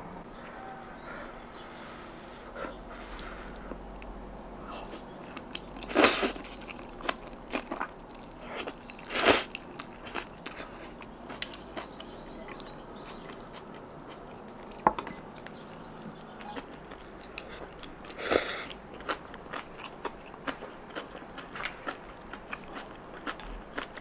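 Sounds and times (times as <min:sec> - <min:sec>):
chewing clicks: 0:11.3 - 0:24.0.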